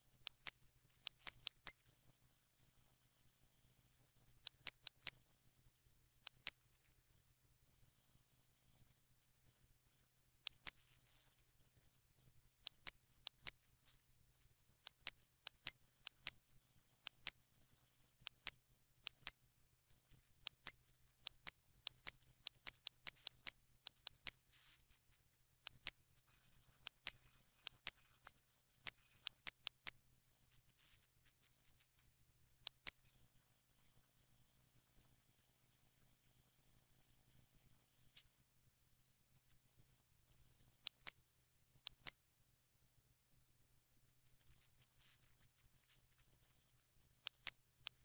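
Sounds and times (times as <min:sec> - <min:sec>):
faint low hum: 0:00.0 - 0:48.0
mouse and keyboard clicks: 0:00.2 - 0:02.0, 0:04.0 - 0:05.3, 0:06.2 - 0:07.0, 0:10.4 - 0:11.6, 0:12.2 - 0:16.4, 0:17.0 - 0:33.2, 0:40.3 - 0:41.2, 0:41.8 - 0:42.2, 0:44.3 - 0:48.0.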